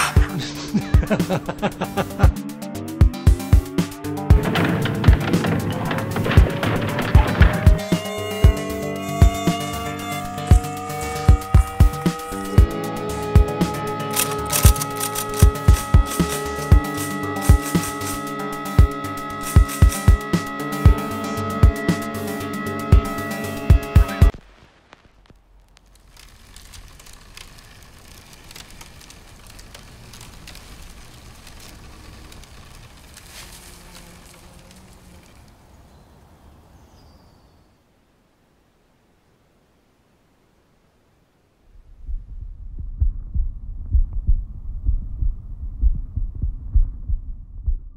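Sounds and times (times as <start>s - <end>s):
ice crackling on branches: 14.0s - 21.2s, 24.3s - 35.8s
low steady rumble: 41.6s - 47.9s.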